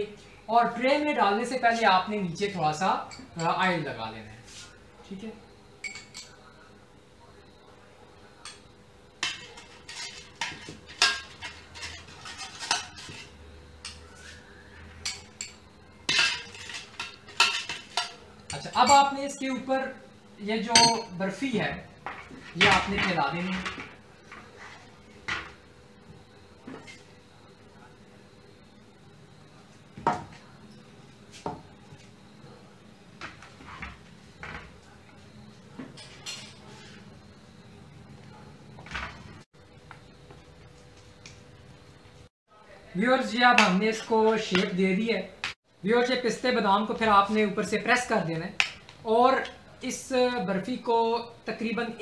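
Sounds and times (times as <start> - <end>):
metal spoon scraping metal tray: 9.2 - 14.0, 16.1 - 19.1.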